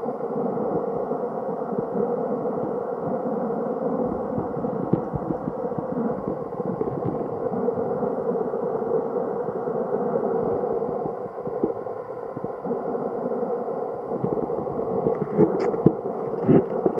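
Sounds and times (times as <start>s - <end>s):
underwater river rush: 0.0s - 16.9s
dense crackle: 0.1s - 16.9s.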